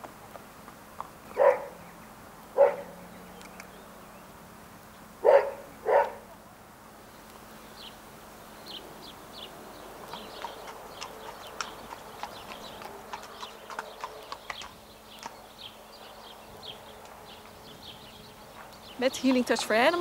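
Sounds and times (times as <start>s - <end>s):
small birds chirping: 1.2s - 6.3s, 7.0s - 20.0s
dog barking: 1.4s - 1.8s, 2.6s - 3.0s, 5.2s - 6.3s.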